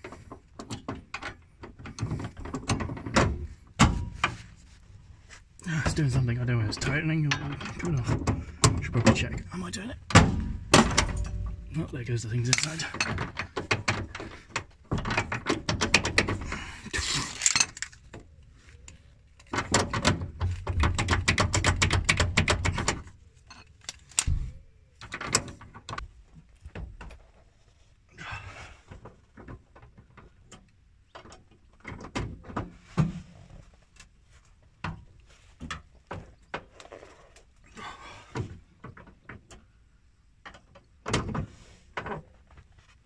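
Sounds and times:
metal tools knocking and clinking: 0:10.1 - 0:14.2.

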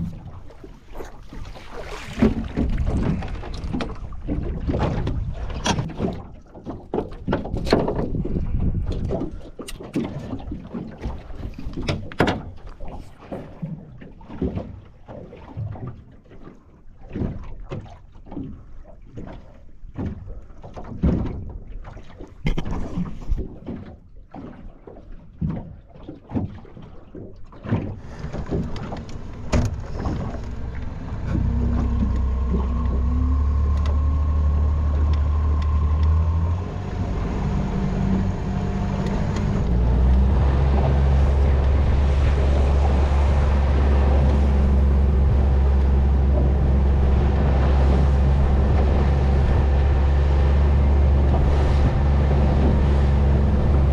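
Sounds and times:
outboard motor humming: 0:00.0 - 0:16.4, 0:27.6 - 0:53.9
knocks and thumps on boat: 0:00.0 - 0:53.9.

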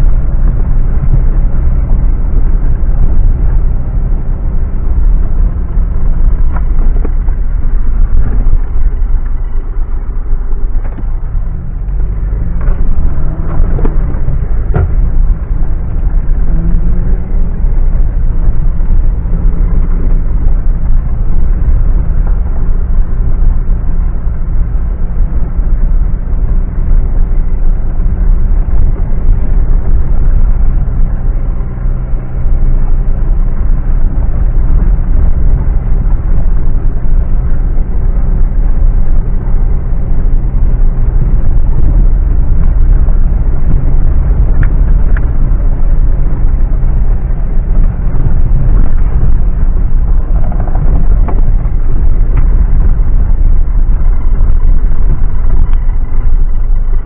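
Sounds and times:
vehicle engine rumbling under load: 0:00.0 - 0:57.0
sharp knocks and clatters: 0:12.5 - 0:15.4.

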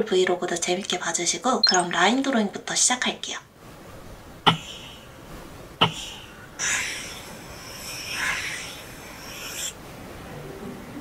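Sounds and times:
stylus tapping on glass screen: 0:01.6 - 0:01.9.

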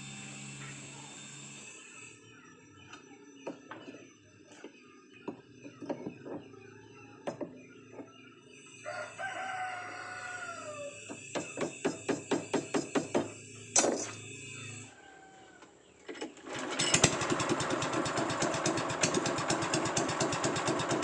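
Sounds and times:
rooster crowing: 0:08.8 - 0:11.0, 0:14.6 - 0:15.8.

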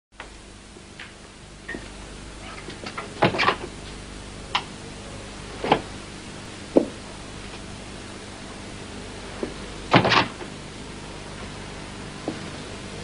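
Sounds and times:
knocks and thumps: 0:06.8 - 0:07.0, 0:09.4 - 0:10.5.

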